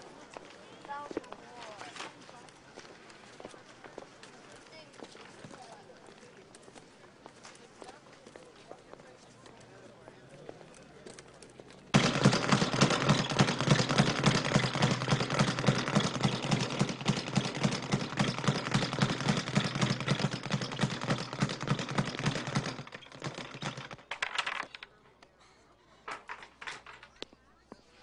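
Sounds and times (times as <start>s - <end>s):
speed bag being punched: 12.0s - 24.0s.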